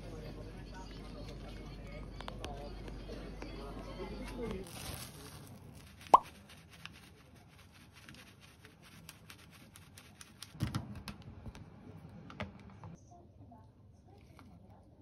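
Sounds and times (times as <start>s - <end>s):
flakes rustling onto rice: 4.6s - 8.1s.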